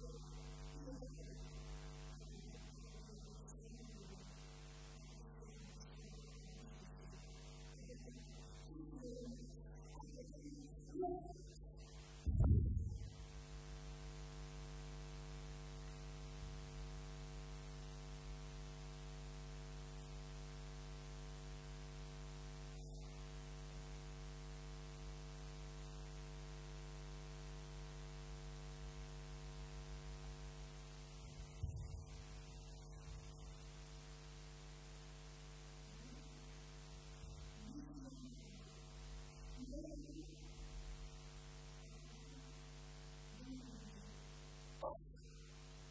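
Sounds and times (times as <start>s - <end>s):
electrical mains hum: 0.0s - 45.9s
faint voice: 37.2s - 40.8s.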